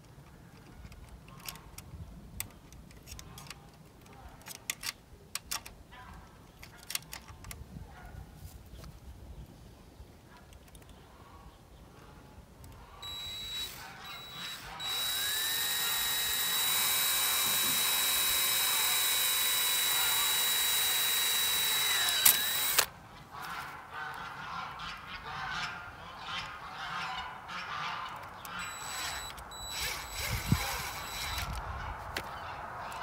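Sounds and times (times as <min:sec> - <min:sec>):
cordless drill driving screw into wood: 0:13.0 - 0:22.9, 0:28.4 - 0:31.6.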